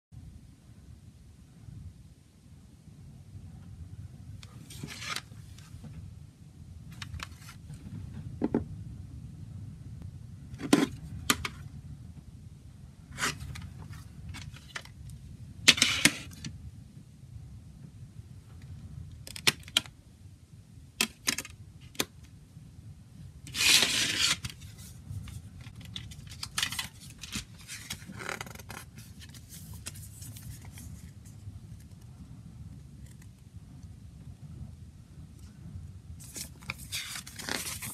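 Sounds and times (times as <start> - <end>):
plastic case scrape: 23.5 - 31.1, 36.2 - 37.9
paper booklet rustling: 23.5 - 32.1, 36.2 - 37.9.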